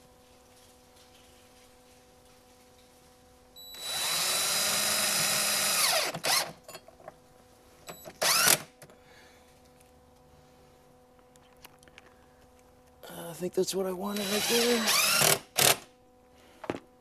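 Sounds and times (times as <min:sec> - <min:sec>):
cordless drill running: 0:03.7 - 0:06.6, 0:08.2 - 0:08.7, 0:14.1 - 0:15.8.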